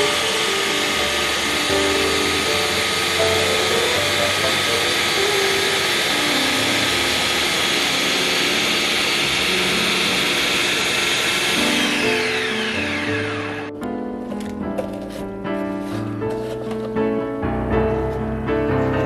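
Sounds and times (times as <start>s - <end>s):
blender whirring: 0.0s - 13.8s.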